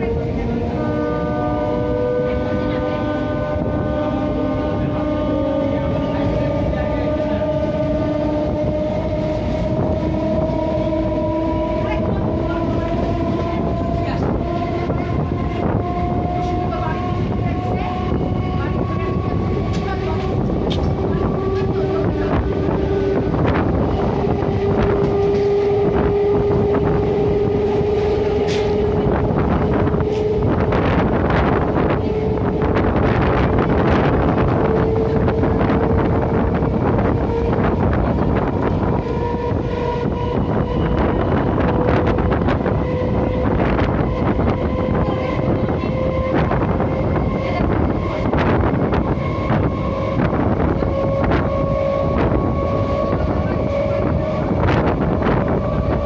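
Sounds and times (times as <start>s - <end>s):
electric train motor whine: 0.0s - 56.0s
train wheels clacking on rails: 0.0s - 56.0s
wind on microphone: 0.0s - 56.0s.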